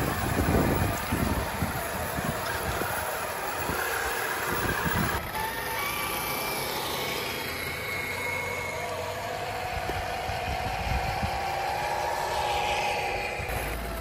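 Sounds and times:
rc car electric motors whining: 0.0 - 14.0.

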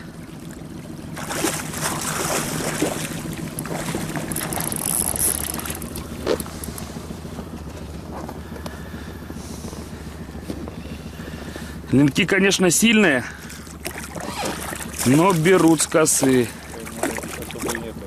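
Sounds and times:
river noise: 0.0 - 18.0
wind: 0.0 - 18.0
fish splashing at water surface: 0.3 - 6.7, 13.4 - 18.0.

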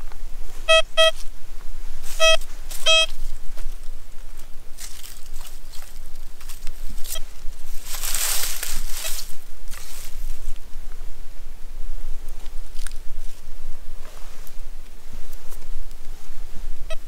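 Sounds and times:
faint rustling: 0.0 - 11.0
metal detector beeps: 0.7 - 1.2, 2.2 - 3.2.

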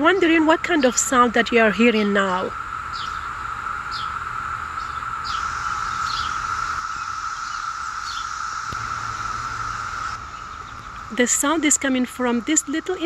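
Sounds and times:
cicadas droning: 0.0 - 13.0.

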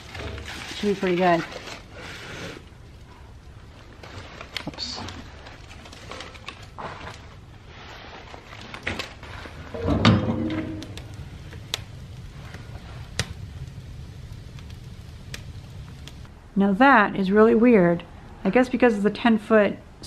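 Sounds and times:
fire crackling: 0.0 - 19.2
metal clunk: 9.7 - 11.0.

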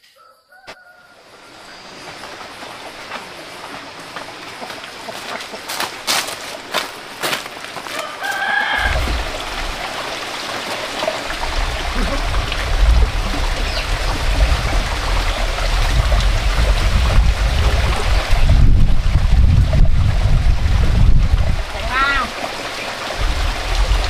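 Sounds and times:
light footsteps: 1.9 - 8.4
chicken call: 7.9 - 9.2
wind buffeting microphone: 8.8 - 9.9, 11.2 - 22.2, 23.1 - 24.0.

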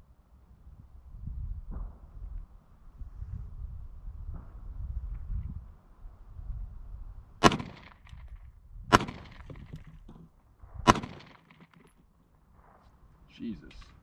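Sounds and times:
pistol shots: 7.4 - 8.2, 8.9 - 9.9, 10.8 - 11.9.

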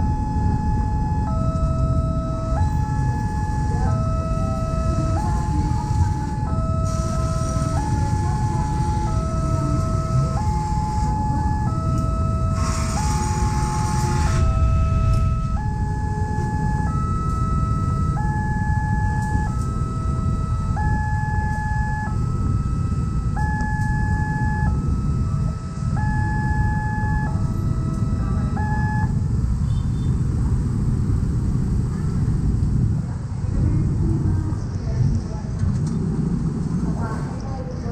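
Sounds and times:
level crossing two-tone alarm: 0.0 - 29.2
low rumble of traffic and train: 0.0 - 37.9.

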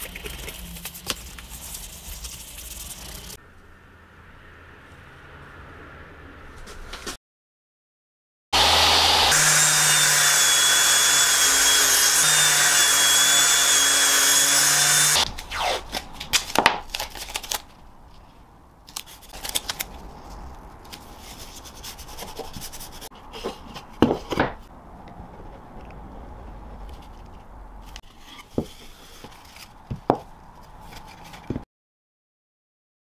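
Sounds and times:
table saw cutting: 8.6 - 15.8.

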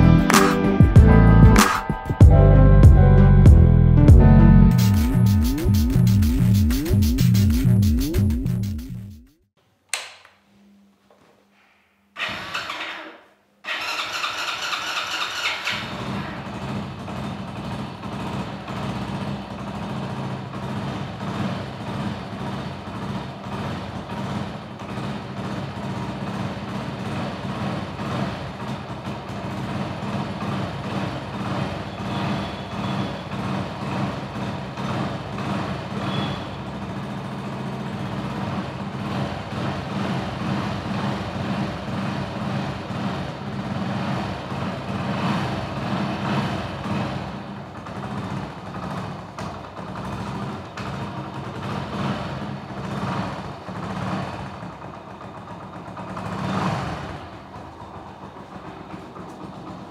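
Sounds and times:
motorcycle engine cranking: 12.2 - 36.8, 46.0 - 59.9
motorcycle engine idling: 13.6 - 59.9.

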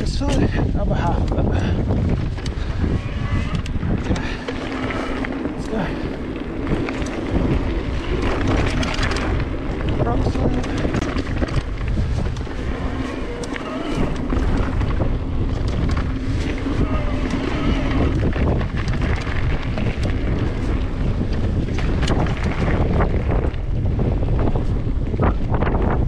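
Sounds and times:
bike rattles and clicks: 0.0 - 26.0
tyre rumble: 0.0 - 26.0
wind buffeting microphone: 0.0 - 26.0.

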